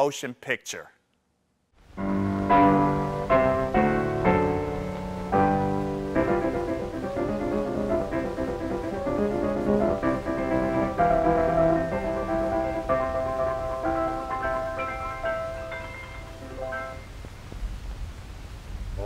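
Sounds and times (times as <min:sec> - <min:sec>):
instrumental film music with piano: 0:02.0 - 0:17.2.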